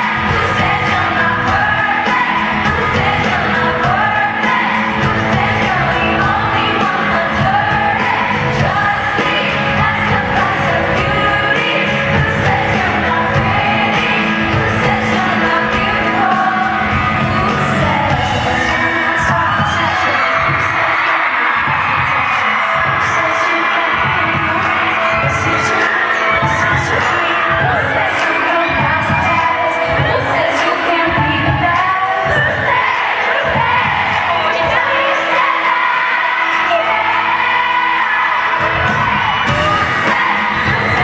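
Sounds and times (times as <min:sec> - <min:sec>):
live pop band playing: 0:00.0 - 0:41.0
woman singing lead vocals: 0:00.0 - 0:41.0.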